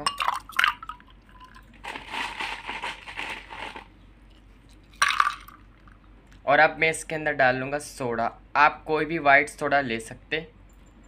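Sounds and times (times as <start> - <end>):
ice clinking against glass: 0.0 - 3.4, 5.0 - 5.6
ice cubes rattling in glass: 0.0 - 3.9, 5.0 - 5.6.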